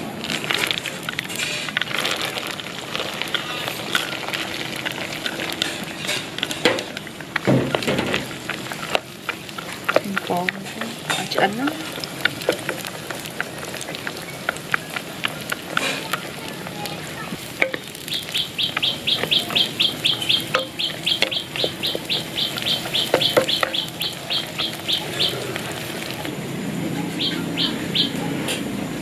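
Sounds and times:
spatula stirring peanuts in wok: 0.0s - 26.3s
light sizzle: 0.0s - 29.0s
bird chirping rapidly: 17.8s - 26.3s, 27.1s - 28.2s.

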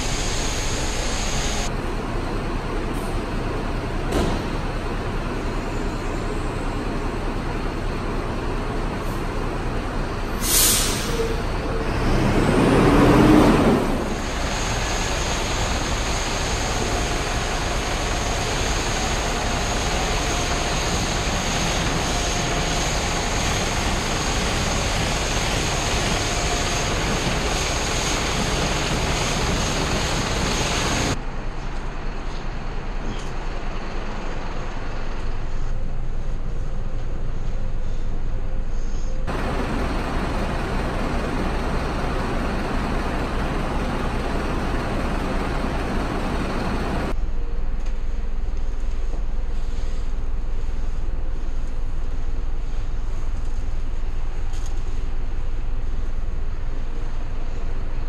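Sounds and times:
bus engine running: 0.0s - 58.0s
air brake hiss: 10.4s - 11.5s
jet wash whine: 11.9s - 31.2s, 39.3s - 47.2s.

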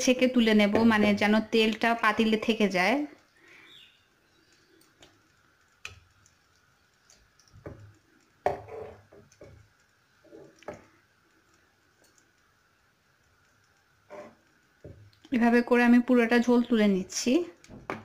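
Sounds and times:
metal spoon scraping a pan: 14.1s - 14.4s.

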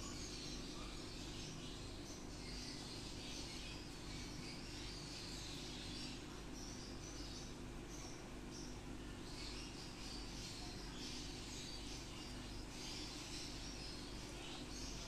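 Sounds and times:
faint high-pitched chirping: 0.0s - 15.0s
steady low hum: 0.0s - 15.0s.

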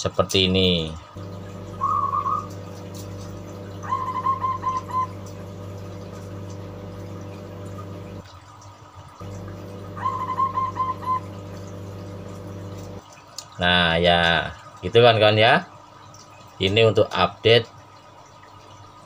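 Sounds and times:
low hum: 1.2s - 8.2s, 9.2s - 13.0s
dove cooing: 1.5s - 8.0s, 9.6s - 12.7s.

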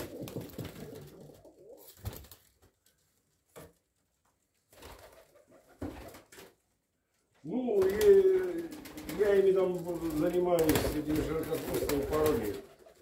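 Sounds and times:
wings flapping: 0.0s - 2.7s, 4.7s - 6.6s, 7.7s - 13.0s.

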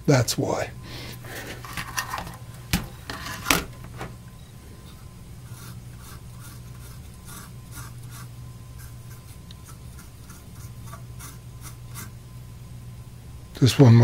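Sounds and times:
cotton swab scrubbing circuit board: 5.4s - 12.2s.

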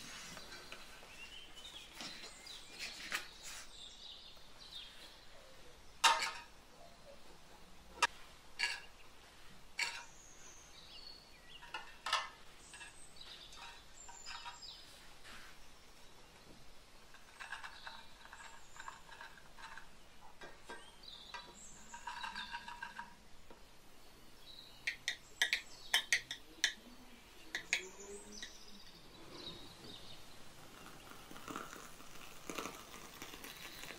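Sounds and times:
metal spoon tapping plastic cups: 24.8s - 28.9s.

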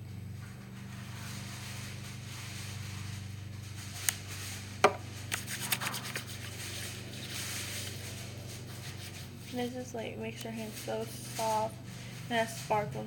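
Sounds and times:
steady low hum: 0.0s - 13.0s
hands rubbing gel: 5.3s - 7.4s.

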